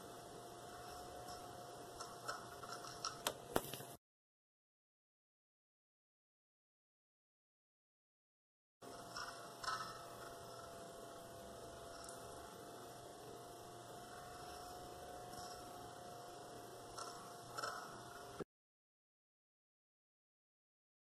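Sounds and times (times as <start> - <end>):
thin hum tone: 0.0 - 4.0, 8.8 - 18.5.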